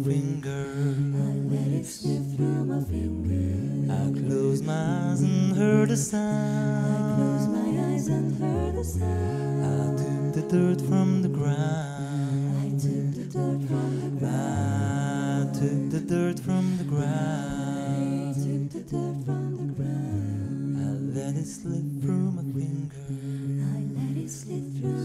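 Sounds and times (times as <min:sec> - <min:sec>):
sung bass line: 0:00.0 - 0:22.9
a cappella group singing: 0:00.0 - 0:25.0.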